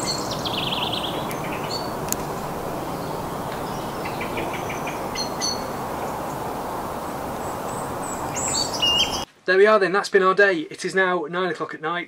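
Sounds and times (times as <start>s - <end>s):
high bird chirps: 0.0s - 9.3s
steady rushing noise: 0.0s - 9.3s.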